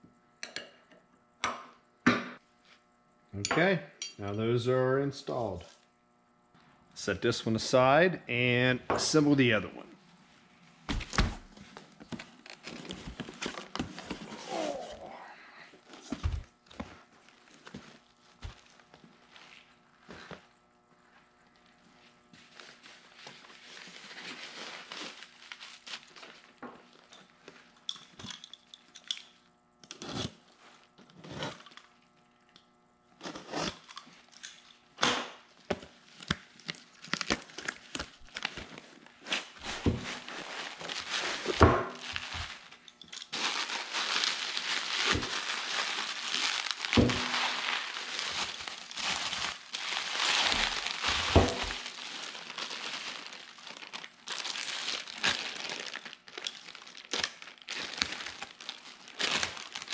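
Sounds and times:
cardboard and plastic rustling: 10.8s - 15.1s, 15.8s - 20.5s, 22.3s - 27.7s, 35.8s - 59.9s
bubble wrap crinkling: 10.9s - 20.4s, 21.4s - 27.7s, 35.4s - 59.9s.

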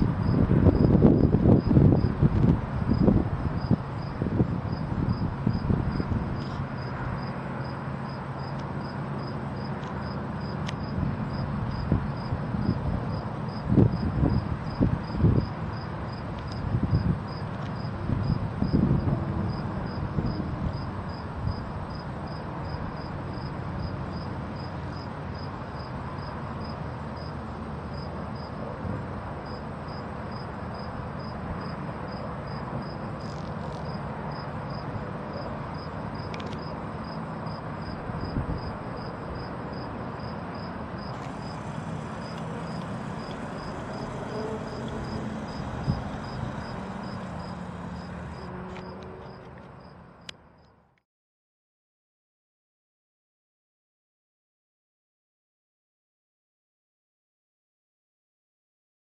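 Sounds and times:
crickets chirping: 0.2s - 50.8s
background hiss: 41.1s - 48.4s.

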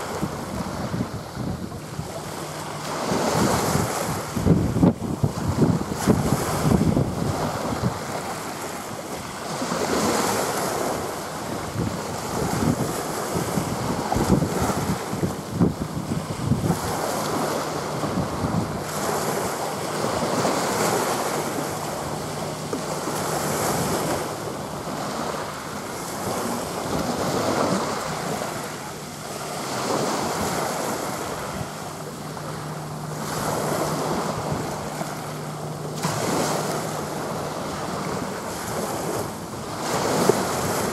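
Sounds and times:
small waves washing on beach: 0.0s - 40.9s
wind buffeting microphone: 0.0s - 40.9s.

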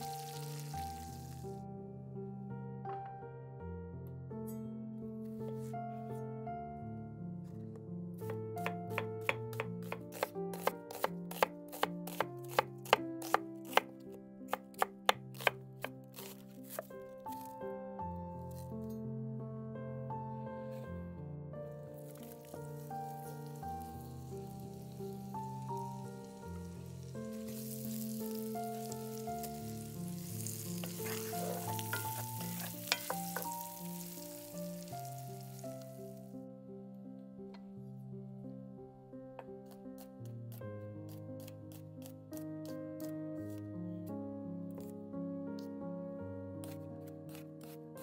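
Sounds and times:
onions sizzling in a pan: 0.0s - 1.6s, 9.2s - 13.8s, 22.1s - 36.3s
soft background music: 0.0s - 48.0s
knife striking wooden board: 8.6s - 13.9s, 14.5s - 16.9s, 30.8s - 33.6s.

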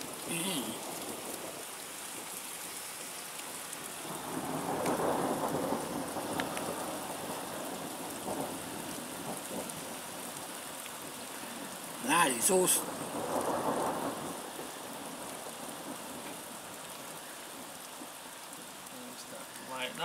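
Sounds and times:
rain falling on road: 0.0s - 20.0s
thunder rumble: 4.0s - 10.3s, 12.8s - 16.6s.

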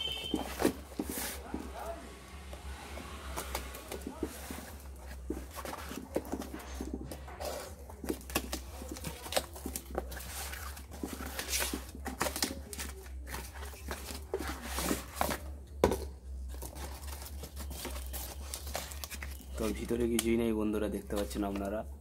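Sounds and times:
paper and cardboard tearing: 16.6s - 19.8s.

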